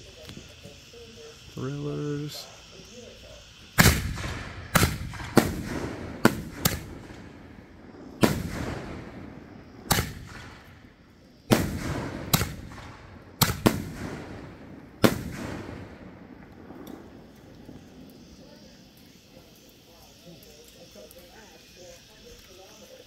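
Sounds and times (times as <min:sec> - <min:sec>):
firework shells booming: 0:03.5 - 0:19.3.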